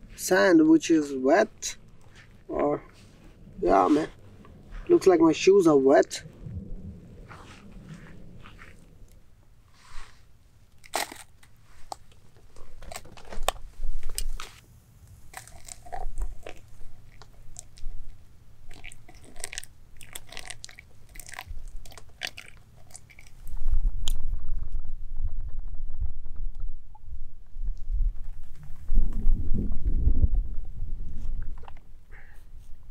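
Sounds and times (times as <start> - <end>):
wind rumble on microphone: 1.9 - 10.0, 23.4 - 32.9.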